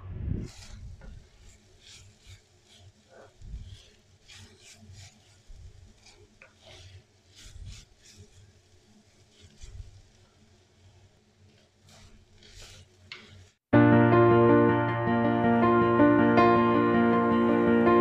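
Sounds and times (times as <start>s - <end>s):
wooden spatula scraping clay pot: 0.5s - 8.6s
ginger frying in oil: 0.6s - 13.7s.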